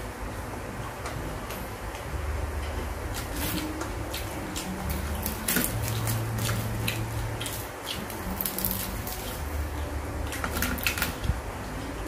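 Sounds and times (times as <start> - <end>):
low hum: 0.0 - 12.0
fried fish crackling as torn: 3.2 - 9.4.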